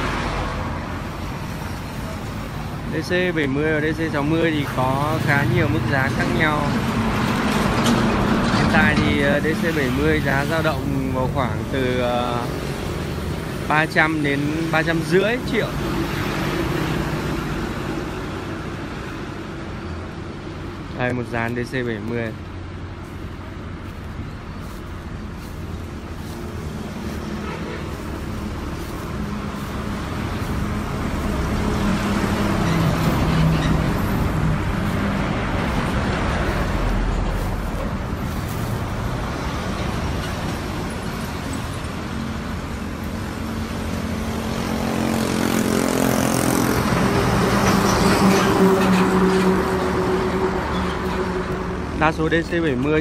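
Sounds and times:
heavy truck diesel engine humming: 0.0s - 53.0s
road traffic passing: 0.0s - 53.0s.

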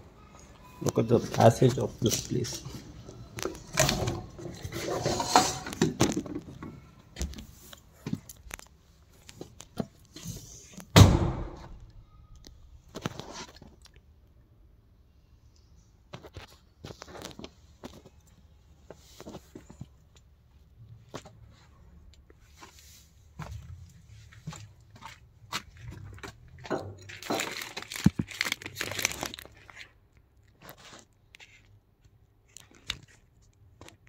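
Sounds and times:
camera rustling and scraping: 1.4s - 6.6s, 12.9s - 13.8s.

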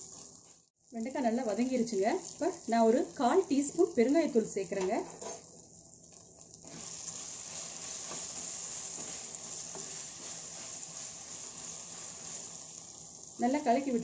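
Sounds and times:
okra sizzling in oil: 0.0s - 14.0s
wooden spatula scraping pot: 6.7s - 12.6s.

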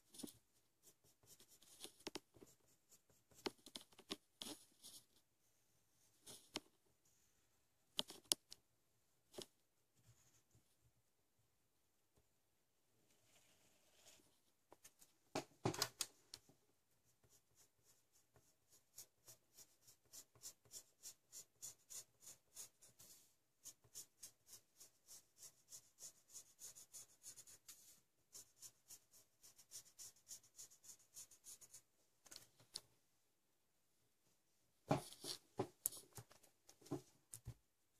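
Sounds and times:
pencil scratching on paper: 0.0s - 5.2s, 16.9s - 31.9s.

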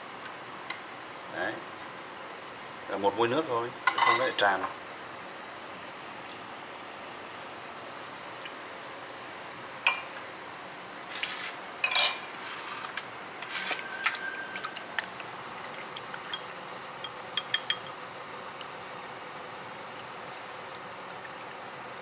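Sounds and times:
ladle clinking against bowls: 11.8s - 12.3s, 13.7s - 14.8s, 16.2s - 18.0s.

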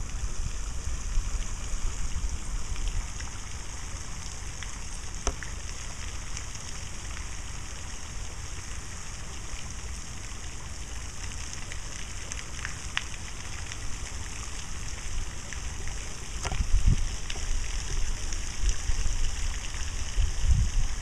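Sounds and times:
low uneven rumble: 0.0s - 21.0s.

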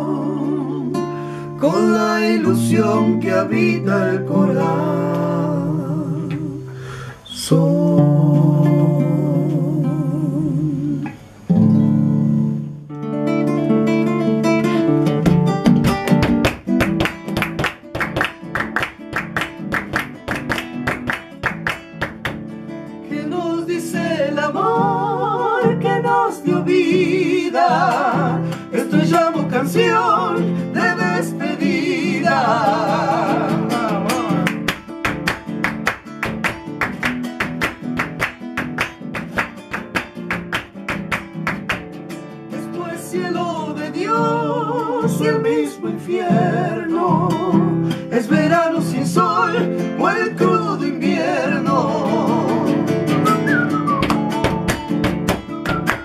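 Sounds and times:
person singing wordlessly: 0.0s - 11.2s, 23.1s - 34.7s, 42.6s - 53.2s
acoustic guitar strumming: 0.0s - 56.0s.

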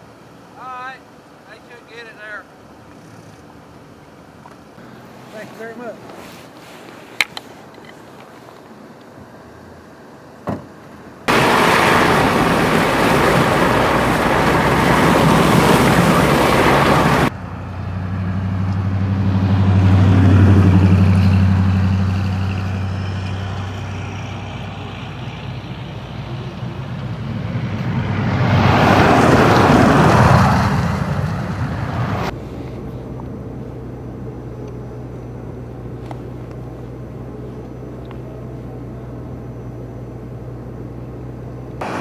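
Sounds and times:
vehicle engine hum: 0.0s - 42.0s
truck tyres on snowy road: 2.8s - 10.0s, 10.8s - 42.0s
loud rushing noise: 11.3s - 17.4s, 26.9s - 32.6s.

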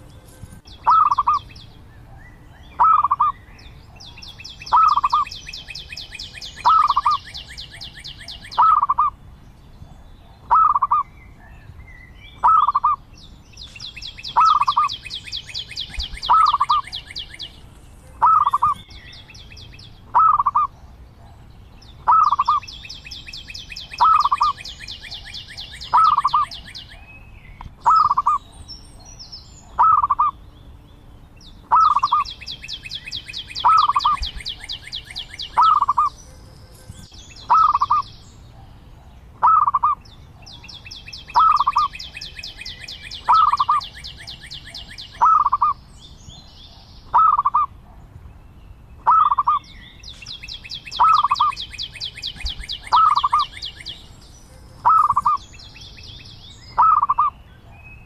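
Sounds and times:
dove cooing: 0.0s - 1.5s, 2.7s - 3.3s, 4.7s - 5.3s, 6.6s - 7.2s, 8.3s - 9.1s, 10.5s - 11.0s, 16.2s - 17.0s, 18.2s - 18.8s, 20.1s - 20.7s, 22.0s - 22.6s, 23.9s - 25.2s, 25.8s - 26.8s, 27.8s - 28.4s, 29.8s - 30.3s, 31.7s - 32.3s, 33.6s - 36.2s, 37.5s - 38.0s, 39.4s - 40.0s, 41.3s - 42.0s, 43.2s - 43.8s, 45.2s - 45.8s, 47.1s - 47.7s, 49.0s - 49.6s, 51.0s - 51.6s, 52.7s - 53.5s, 54.8s - 55.4s.

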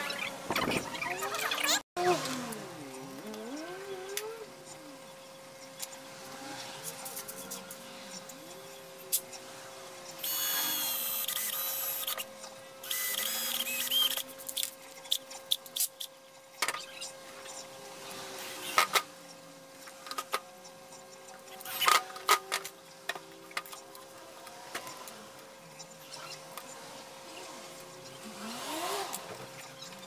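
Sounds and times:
cordless drill whine: 10.2s - 14.2s.

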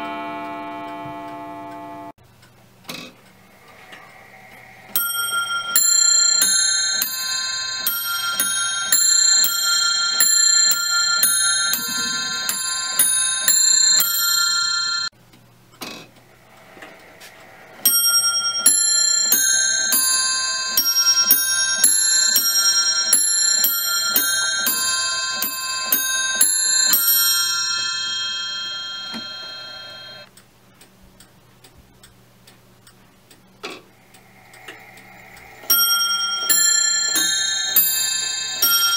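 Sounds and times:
clock ticking: 0.0s - 38.9s
bells ringing: 3.9s - 15.1s, 17.4s - 30.2s, 34.3s - 38.9s.

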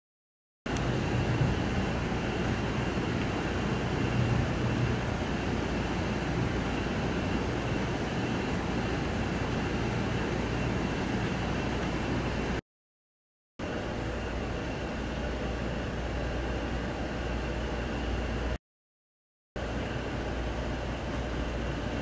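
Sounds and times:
train coach running noise: 0.7s - 12.6s, 13.6s - 18.6s, 19.6s - 22.0s.

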